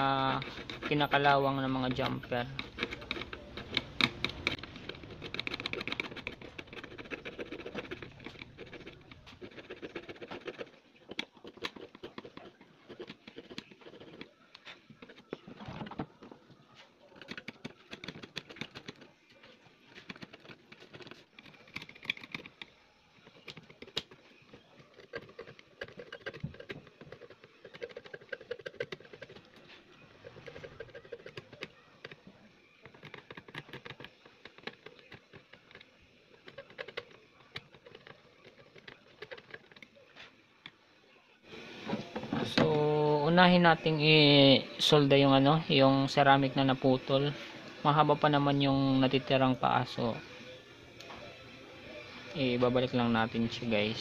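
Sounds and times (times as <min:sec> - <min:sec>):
tool scraping rust off wires: 0:00.0 - 0:15.4.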